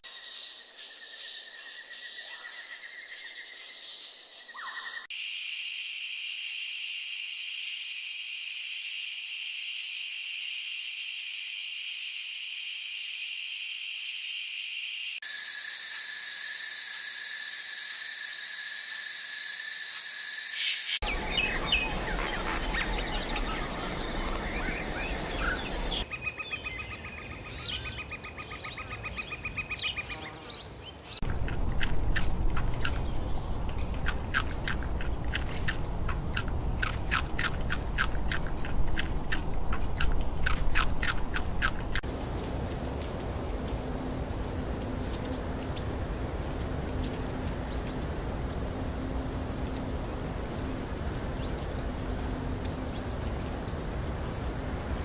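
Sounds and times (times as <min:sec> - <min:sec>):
insects droning: 0:00.1 - 0:26.4, 0:29.4 - 0:55.0
bird chirps: 0:20.5 - 0:42.0, 0:48.6 - 0:53.1.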